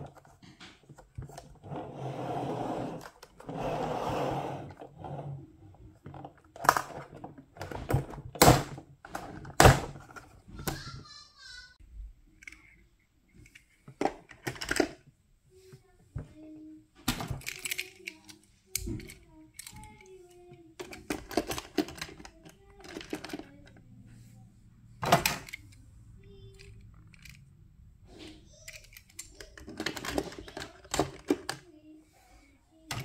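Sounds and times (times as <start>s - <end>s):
toy cars clicking into plastic case: 13.4s - 15.0s, 17.1s - 23.8s, 25.0s - 27.5s, 28.4s - 31.7s.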